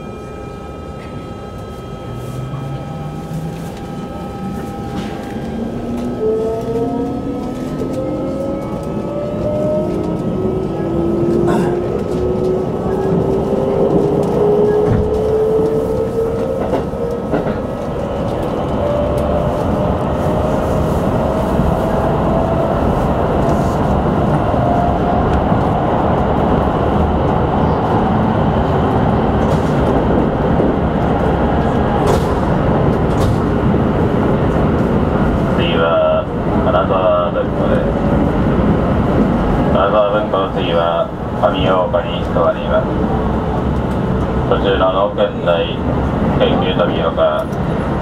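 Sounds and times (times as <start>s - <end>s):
train traction motor whine: 0.0s - 26.3s
wheels rumbling on rails: 0.0s - 48.0s.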